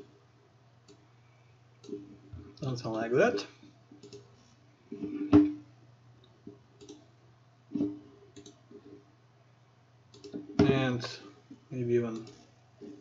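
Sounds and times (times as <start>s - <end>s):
low electrical hum: 0.0s - 13.0s
computer mouse clicks: 4.0s - 4.3s, 6.2s - 7.1s, 7.8s - 8.9s, 10.1s - 10.4s, 12.1s - 13.0s.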